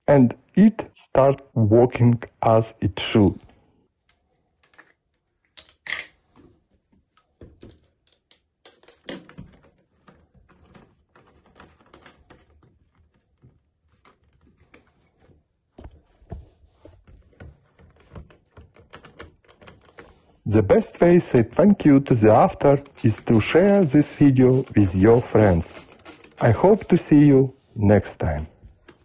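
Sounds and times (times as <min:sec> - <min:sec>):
spray bottle plastic clicks: 0:22.7 - 0:27.0.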